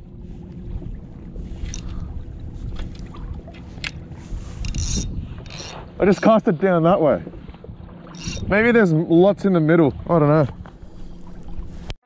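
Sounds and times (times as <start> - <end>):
water against kayak hull: 0.0 - 12.0
wind on microphone: 0.0 - 12.0
fishing reel clicks and hisses: 4.6 - 5.8, 8.2 - 8.4.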